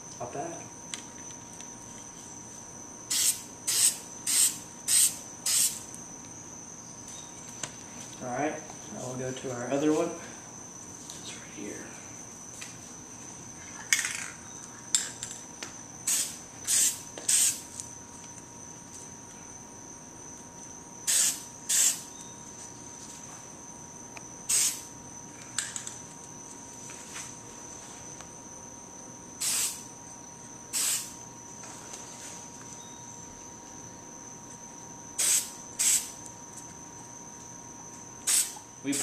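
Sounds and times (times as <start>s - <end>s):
spray can hissing: 3.1s - 5.8s, 16.1s - 17.6s, 21.1s - 22.0s, 24.5s - 24.8s, 29.4s - 29.8s, 30.7s - 31.1s, 35.2s - 36.1s, 38.2s - 38.6s.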